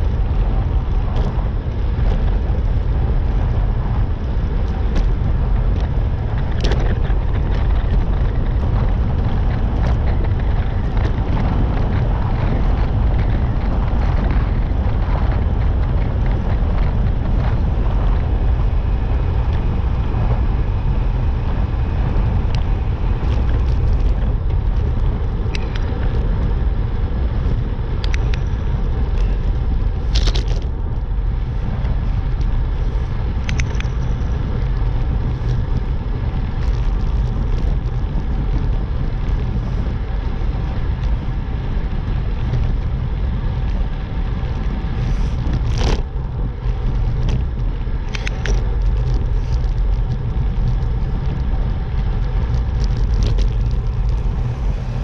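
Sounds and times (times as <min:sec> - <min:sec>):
road noise: 0:00.0 - 0:55.0
wind rumbling on microphone: 0:00.0 - 0:55.0.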